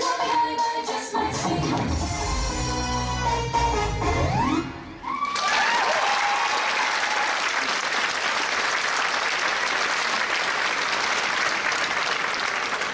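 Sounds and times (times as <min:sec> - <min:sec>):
audience cheering: 0:05.0 - 0:07.9
audience applauding: 0:05.0 - 0:12.9.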